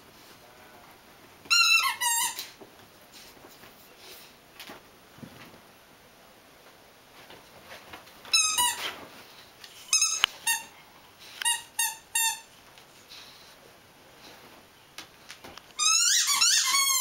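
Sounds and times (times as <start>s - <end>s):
squeaky toy squeaking: 1.5s - 2.4s, 8.3s - 8.8s, 9.9s - 10.7s, 11.4s - 12.5s, 15.8s - 17.0s.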